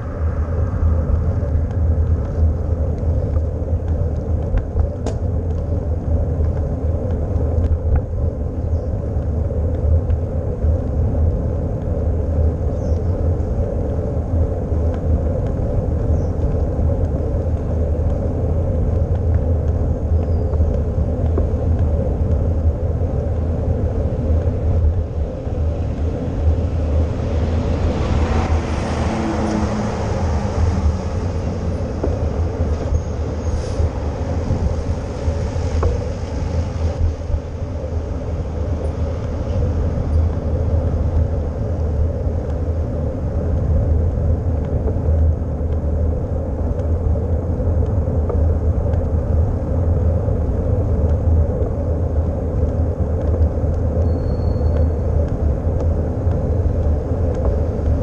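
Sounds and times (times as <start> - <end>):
bicycle tyre and road noise: 0.0 - 58.0
wind rumble on microphone: 0.0 - 58.0
motor vehicle passing: 25.8 - 37.0.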